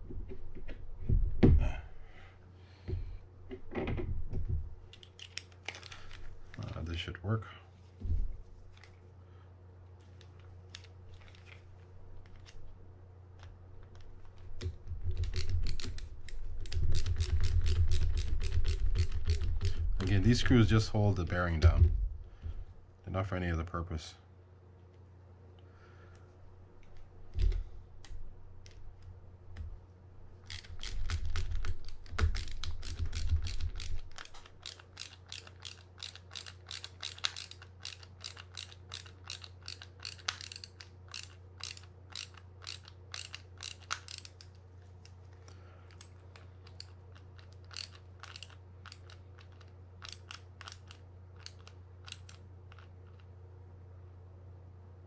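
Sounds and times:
heavy handling thumps: 19.6s - 22.7s
ratcheting screwdriver clicking: 30.5s - 44.6s, 45.9s - 53.3s.

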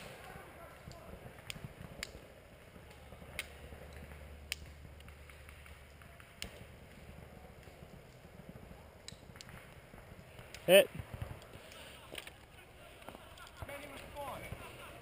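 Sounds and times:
low rumble: 2.3s - 8.9s.

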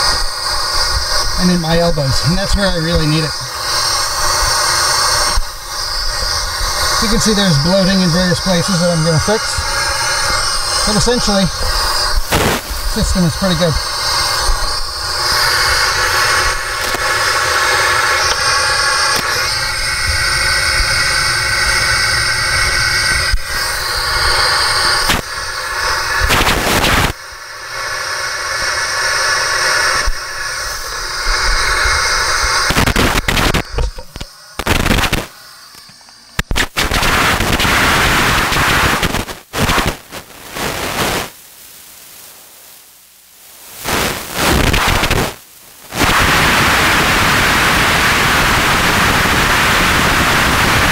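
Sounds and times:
air hissing through spacesuit: 0.0s - 39.9s.

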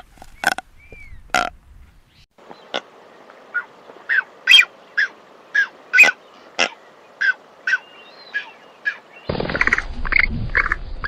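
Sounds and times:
bird calling rapidly: 3.5s - 10.9s.

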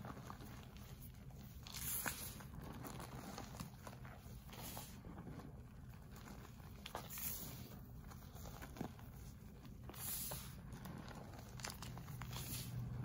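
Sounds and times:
chalk crunching in hands: 0.0s - 5.4s, 6.2s - 13.0s
powder sifting hiss: 9.9s - 10.9s, 12.3s - 13.0s.

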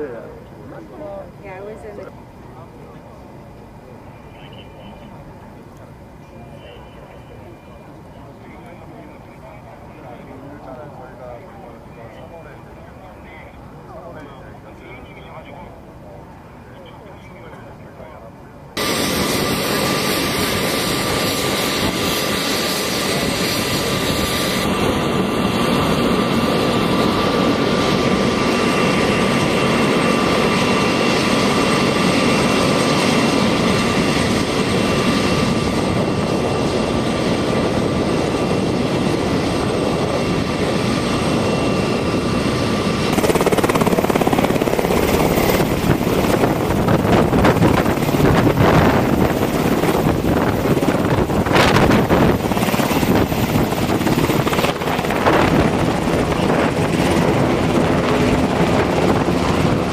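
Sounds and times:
helicopter turbine whine: 0.0s - 59.9s
helicopter rotor beat: 18.8s - 59.9s.

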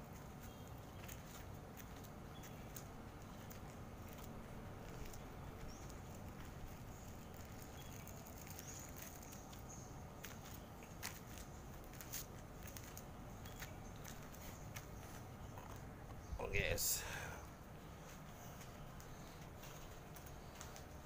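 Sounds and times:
cats chewing: 0.0s - 16.2s, 17.1s - 21.0s.

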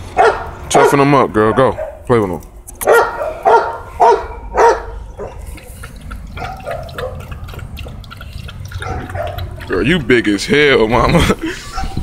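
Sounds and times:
puppy barking: 0.2s - 2.1s, 2.8s - 5.6s, 6.3s - 7.5s, 8.7s - 9.7s, 11.7s - 12.0s
puppy lapping water: 2.7s - 12.0s.

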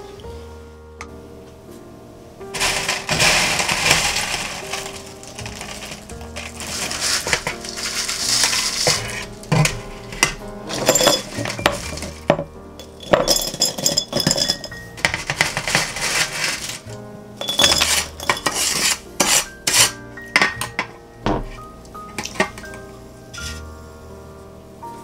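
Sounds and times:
candy rattling into glass jar: 2.6s - 19.9s.

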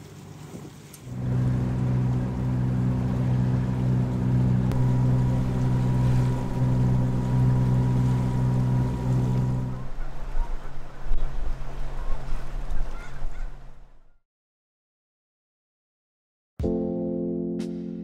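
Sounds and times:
boat engine droning: 1.1s - 12.9s.

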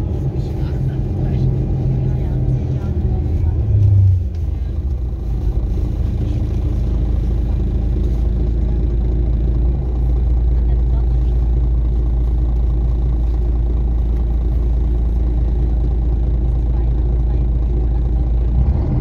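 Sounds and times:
bus engine rumble: 0.0s - 19.0s.

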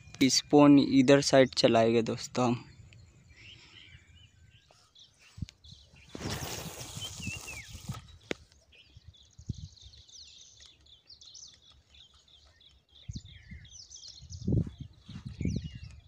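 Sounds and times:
birds chirping: 0.0s - 16.0s
fishing line hissing off reel: 6.1s - 8.0s.

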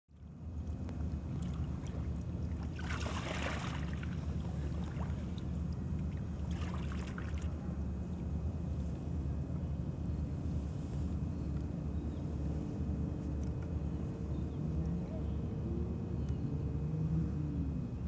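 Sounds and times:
water splashing: 1.3s - 7.6s.

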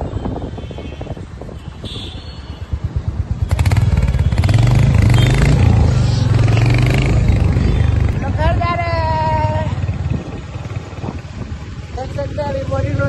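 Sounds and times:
motorcycle engine running: 2.6s - 13.0s.

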